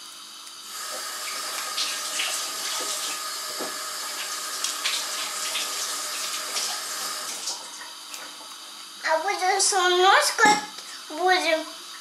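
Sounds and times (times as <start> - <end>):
tap running into sink: 0.8 - 7.6.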